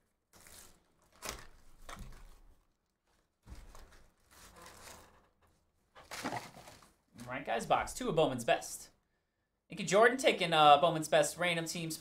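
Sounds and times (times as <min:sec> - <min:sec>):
cardboard packaging tearing: 0:00.3 - 0:02.4, 0:03.7 - 0:05.1, 0:06.0 - 0:07.0.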